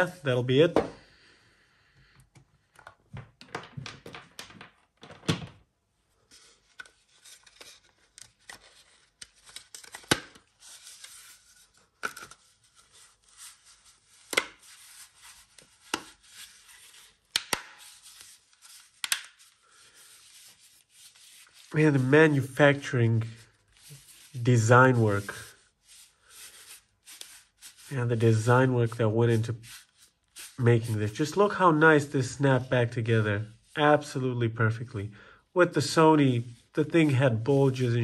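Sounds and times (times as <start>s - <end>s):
plastic clicks and knocks: 2.3s - 5.6s
soft rubbing: 17.8s - 34.2s.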